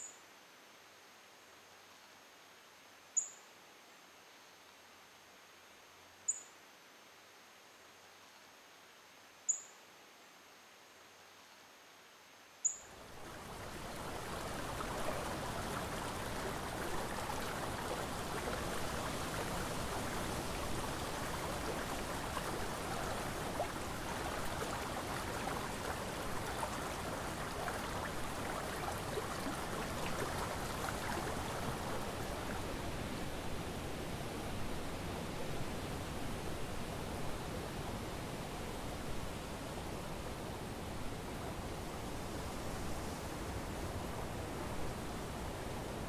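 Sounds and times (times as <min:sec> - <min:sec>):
river water flowing: 0:12.8 - 0:46.0.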